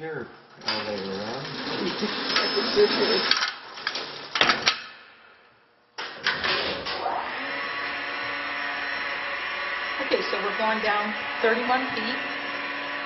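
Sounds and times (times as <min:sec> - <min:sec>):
lift motor hum: 0:06.2 - 0:13.0.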